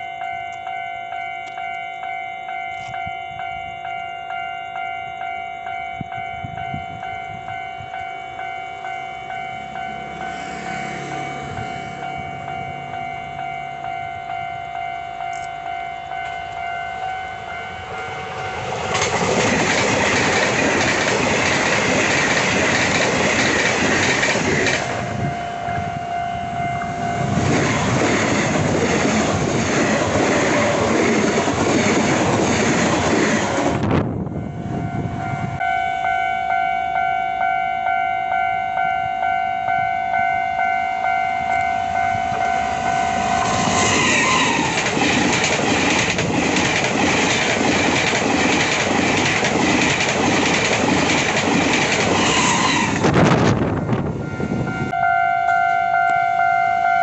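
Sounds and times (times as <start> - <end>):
level crossing bell ringing: 0.0 - 18.7, 34.4 - 43.7
train wheels rattling on rails: 17.4 - 25.3, 26.7 - 34.2, 42.0 - 54.2.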